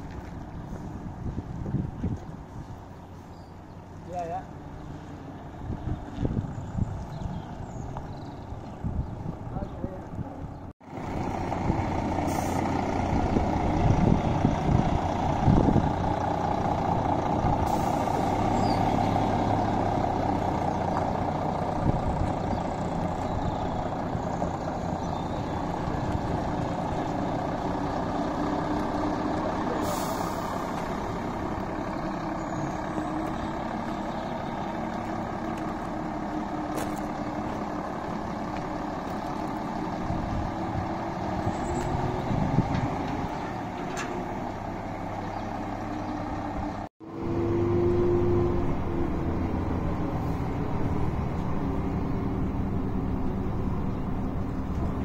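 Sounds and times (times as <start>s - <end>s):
bus diesel engine running: 0.0s - 55.0s
air brake hisses: 29.8s - 30.6s.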